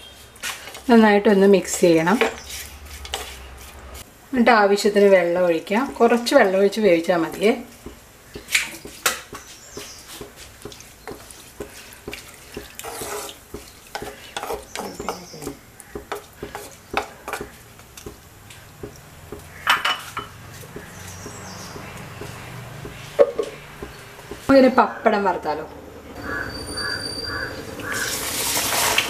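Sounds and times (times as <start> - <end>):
wooden spatula stirring clams: 7.3 - 24.4.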